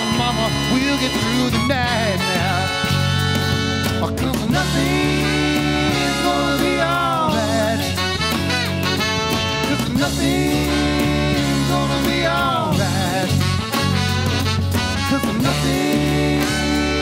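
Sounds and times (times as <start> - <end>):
country rock band playing: 0.0 - 17.0
horn section playing: 0.0 - 17.0
person singing: 4.0 - 8.3, 9.6 - 13.9, 15.0 - 17.0.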